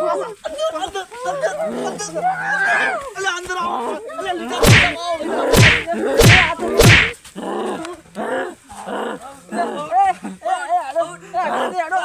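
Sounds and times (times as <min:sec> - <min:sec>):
blows landing on body: 0:04.6 - 0:07.2.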